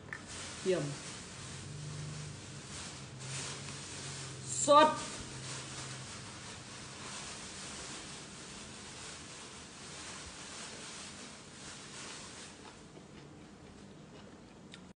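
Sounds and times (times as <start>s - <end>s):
person chewing food: 12.5s - 14.9s.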